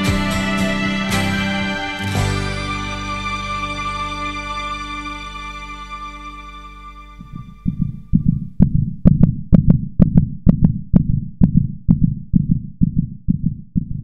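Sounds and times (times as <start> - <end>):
heartbeat thumps: 7.2 - 14.0.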